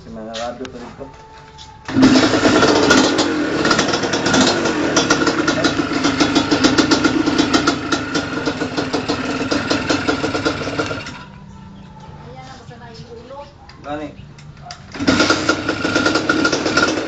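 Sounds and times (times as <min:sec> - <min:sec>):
motorcycle engine idling: 0:01.9 - 0:12.0, 0:14.6 - 0:17.0.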